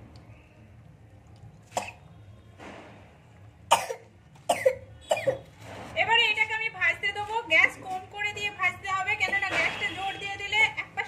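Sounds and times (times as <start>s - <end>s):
person coughing: 3.7s - 5.4s.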